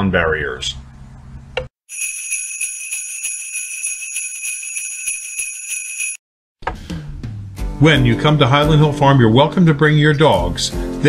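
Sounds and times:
jingle bells shaken: 1.9 - 6.2.

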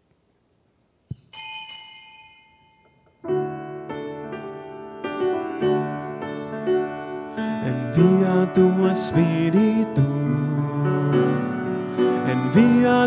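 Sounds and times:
bell-like ring: 1.2 - 3.3
piano chords: 2.1 - 13.0.

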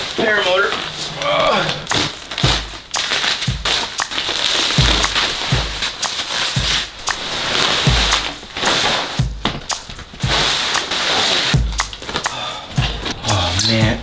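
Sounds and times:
bubble wrap crinkling: 0.0 - 7.9
background music thumping beat: 1.9 - 14.0.

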